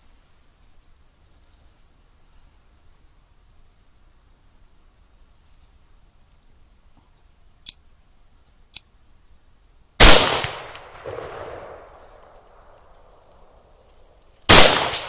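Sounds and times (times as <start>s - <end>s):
loud rifle shot: 10.0s - 12.0s, 14.5s - 15.0s
sharp rifle clicks: 10.0s - 13.1s.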